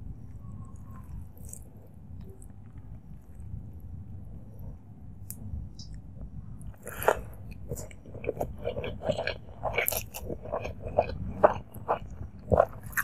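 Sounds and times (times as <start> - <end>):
mouth chewing food: 6.7 - 13.0.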